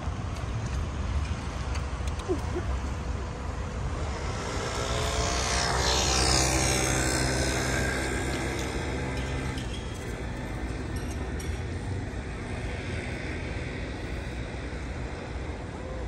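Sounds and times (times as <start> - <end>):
low rumble of city traffic: 0.0 - 16.0
vehicle passing by: 3.8 - 10.9.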